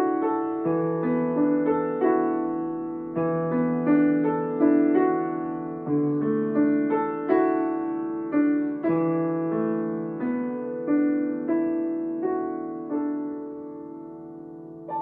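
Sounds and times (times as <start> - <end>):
grand piano notes and chords: 0.0 - 15.0.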